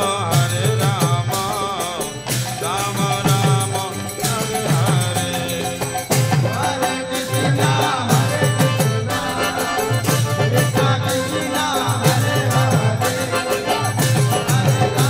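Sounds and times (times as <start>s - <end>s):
group chanting: 2.6s - 15.0s.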